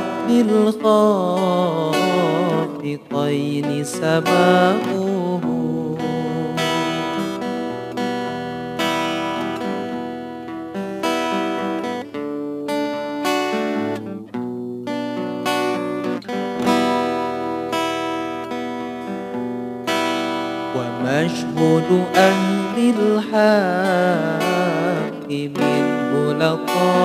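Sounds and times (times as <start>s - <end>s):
person singing religious song: 0.0s - 7.4s, 20.8s - 27.0s
plucked string chords: 0.0s - 27.0s.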